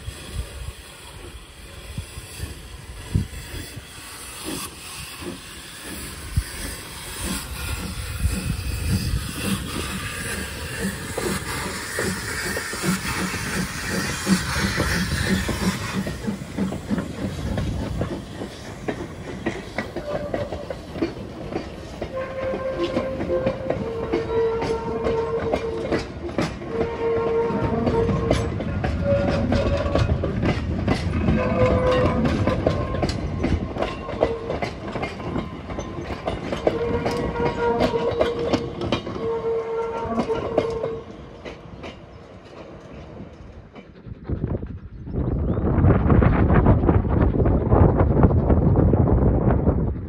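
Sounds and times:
steam locomotive chuffing: 0.0 - 45.2
rail clicks: 0.0 - 50.0.

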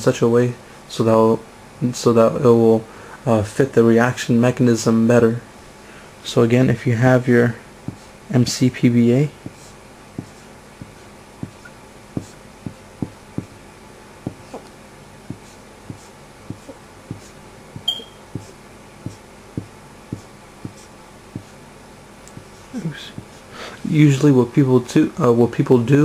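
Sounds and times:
marker tapping on whiteboard: 7.9 - 8.1, 9.4 - 13.6, 14.3 - 14.7, 15.3 - 21.5
marker squeak: 15.4 - 18.5.

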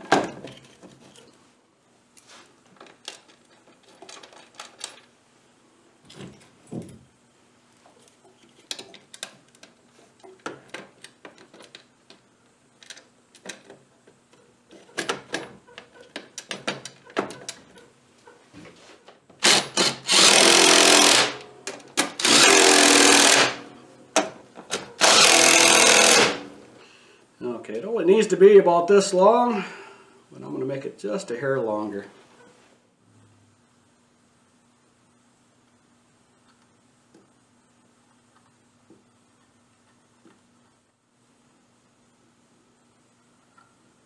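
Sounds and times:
handheld power tool running: 19.4 - 21.5, 22.2 - 23.7, 25.0 - 26.6.

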